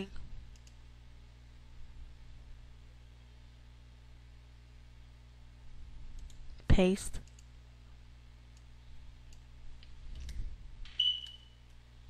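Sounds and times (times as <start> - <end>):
low steady hum: 0.0 - 12.0
keyboard and mouse clicks: 0.5 - 0.8.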